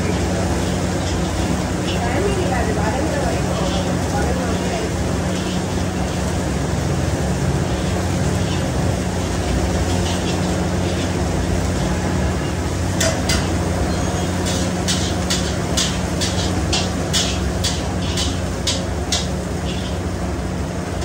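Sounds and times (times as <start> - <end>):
fried rice machine humming: 0.0 - 21.0
metal scraping steel wok: 4.6 - 6.2, 7.6 - 20.1.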